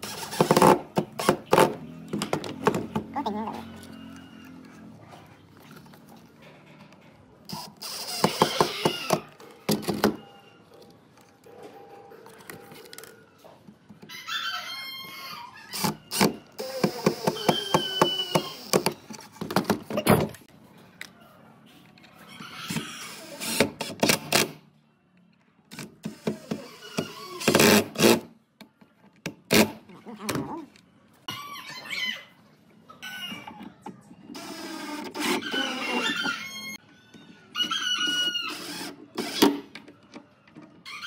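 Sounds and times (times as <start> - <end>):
drill driving screws: 7.5 - 9.2, 15.7 - 18.9, 38.1 - 39.6.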